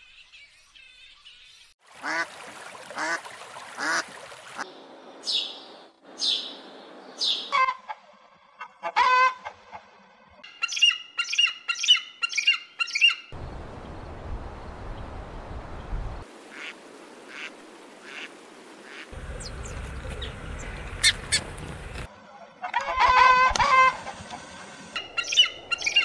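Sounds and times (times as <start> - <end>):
honking animal squawks: 8.8 - 9.6, 22.6 - 24.1.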